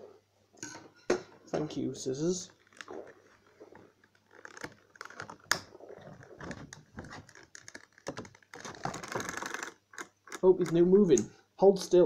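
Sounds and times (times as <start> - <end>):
plastic packaging crackling: 2.4 - 11.0.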